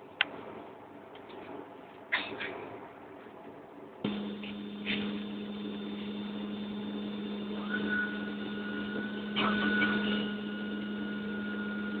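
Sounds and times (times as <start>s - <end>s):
aircraft cabin hum: 4.0s - 12.0s
high whine: 4.0s - 12.0s.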